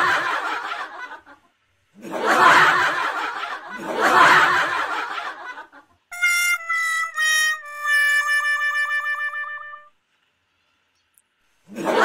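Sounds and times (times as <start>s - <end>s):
laughter in pulsing bursts: 0.0s - 6.0s, 11.7s - 12.0s.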